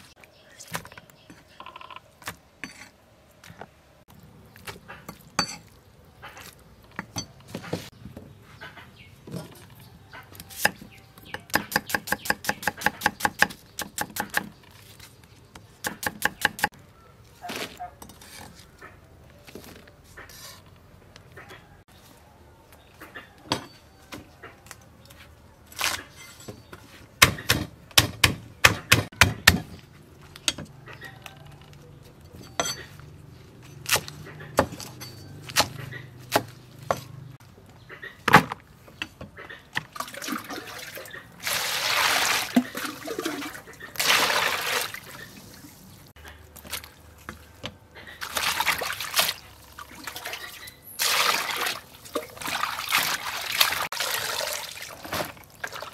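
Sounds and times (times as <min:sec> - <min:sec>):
water sloshing in basin: 0:39.8 - 0:47.3, 0:48.1 - 0:55.9.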